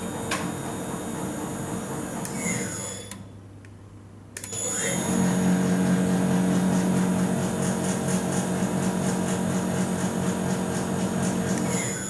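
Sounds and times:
high-pitched inverter whine: 0:04.4 - 0:06.4
spindle motor hum: 0:04.4 - 0:12.0.

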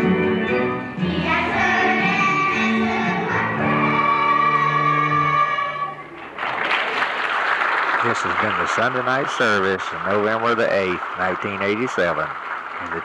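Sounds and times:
children's choir singing: 0:00.7 - 0:06.2
applause: 0:06.1 - 0:13.0
low accompanying notes: 0:08.0 - 0:13.0.

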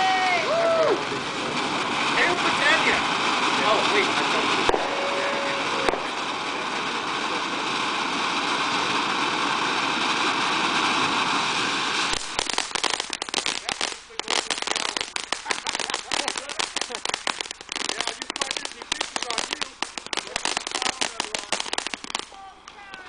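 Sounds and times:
firework fountain crackling: 0:00.0 - 0:23.0
firework fountain hissing: 0:00.0 - 0:23.0.

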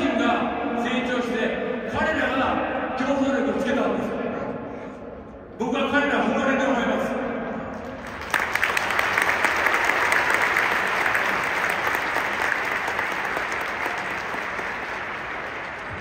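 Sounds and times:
stadium crowd applauding: 0:07.9 - 0:16.0.

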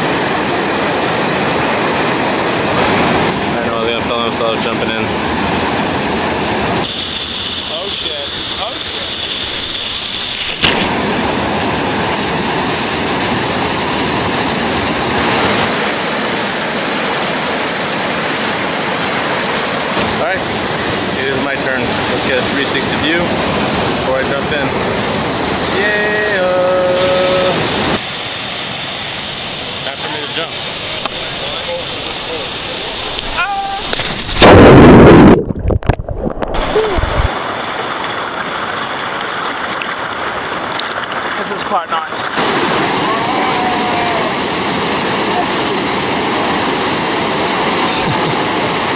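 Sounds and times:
waterfall rushing over rock: 0:00.0 - 0:35.4, 0:36.6 - 0:48.9
underwater bubbling and rumble: 0:34.4 - 0:41.2.

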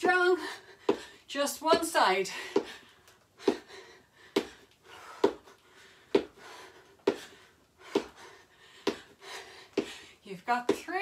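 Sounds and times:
person breathing: 0:02.3 - 0:10.2.

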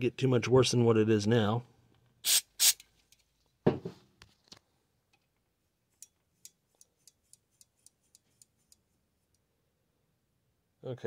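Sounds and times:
aerosol spray burst: 0:02.2 - 0:02.8.

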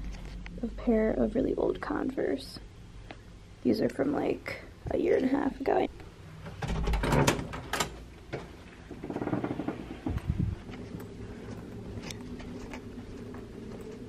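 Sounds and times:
corridor low hum: 0:08.2 - 0:14.0
faint soft footsteps: 0:08.3 - 0:14.0.

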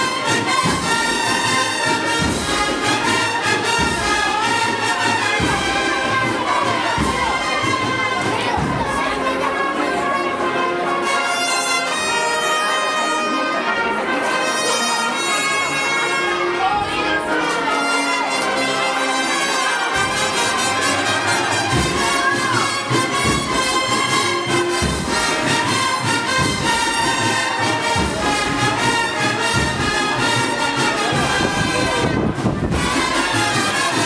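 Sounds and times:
drums: 0:00.0 - 0:09.8, 0:19.9 - 0:34.0
brass band march: 0:00.0 - 0:34.0.

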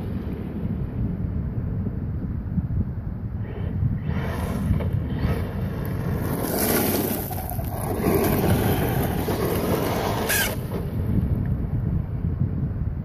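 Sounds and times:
wind rumbling on microphone: 0:00.0 - 0:13.0
tyres hissing over gravel: 0:04.0 - 0:10.8
toy truck electric motor whining: 0:10.3 - 0:10.6.

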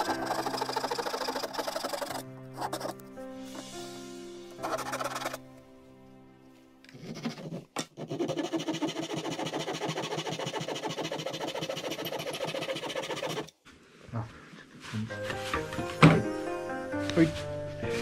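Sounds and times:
hand tool rasping wood: 0:00.0 - 0:03.0, 0:04.6 - 0:05.4, 0:06.9 - 0:13.5.

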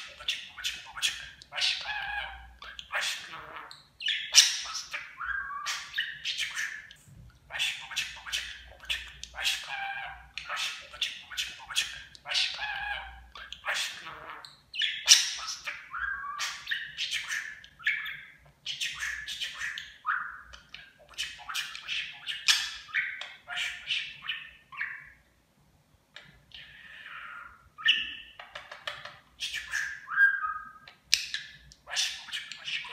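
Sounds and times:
budgerigar chattering: 0:00.0 - 0:06.9, 0:07.5 - 0:25.1.

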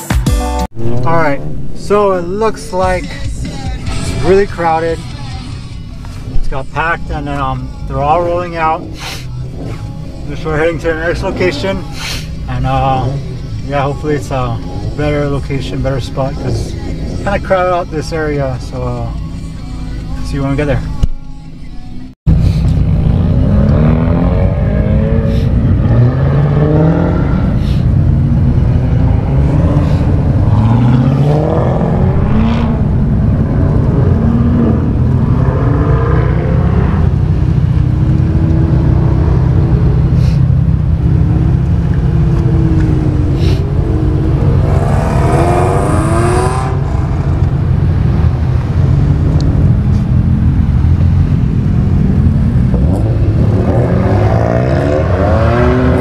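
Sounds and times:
low rumble: 0:00.7 - 0:56.0
cars driving past revving: 0:22.3 - 0:56.0.

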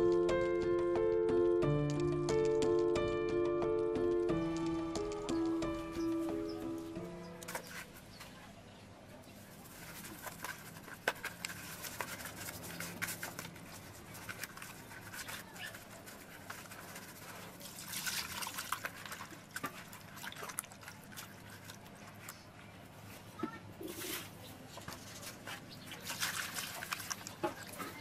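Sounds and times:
hands rubbing salt into fish: 0:09.3 - 0:22.3, 0:25.0 - 0:28.0.

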